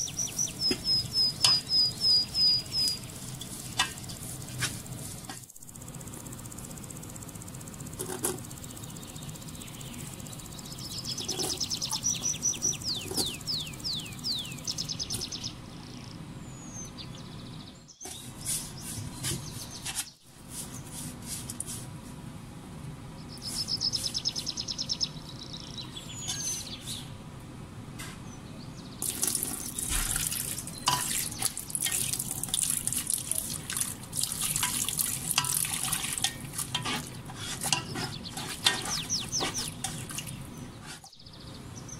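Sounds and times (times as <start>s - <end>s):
bird chirping: 0.0s - 4.4s, 8.5s - 20.2s, 23.2s - 27.2s, 37.8s - 41.9s
water pouring into a pan: 29.0s - 36.7s
spatula scraping a pan: 30.9s - 32.1s, 34.6s - 40.2s.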